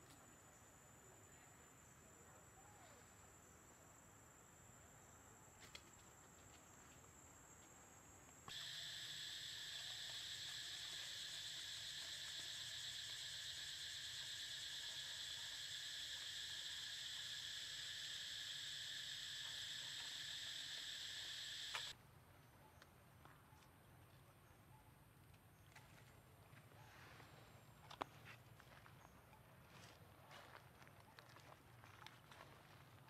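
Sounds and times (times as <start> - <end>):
faint outdoor background: 0.0 - 33.0
high-pitched insect chorus: 5.0 - 21.9.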